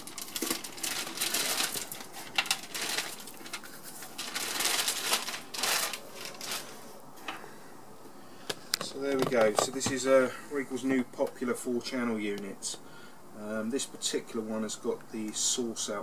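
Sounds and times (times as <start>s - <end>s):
plastic bag crinkling: 0.0s - 6.9s.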